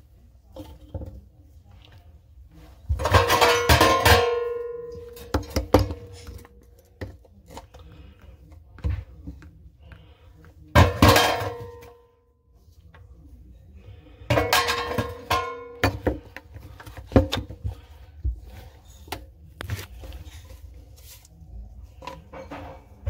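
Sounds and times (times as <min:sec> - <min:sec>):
knocks and clanks on plumbing: 0:02.8 - 0:07.7, 0:10.7 - 0:12.0, 0:14.3 - 0:19.2.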